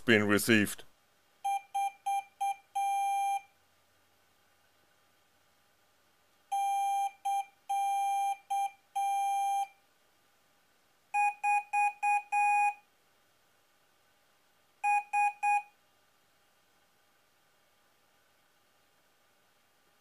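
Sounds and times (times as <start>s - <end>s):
morse code beeps: 1.4s - 3.5s, 6.5s - 9.7s, 11.2s - 12.8s, 14.8s - 15.7s.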